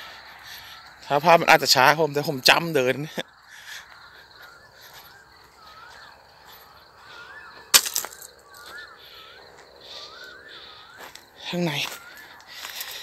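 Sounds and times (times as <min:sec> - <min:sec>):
bird calling with whistled notes: 0:03.1 - 0:13.0.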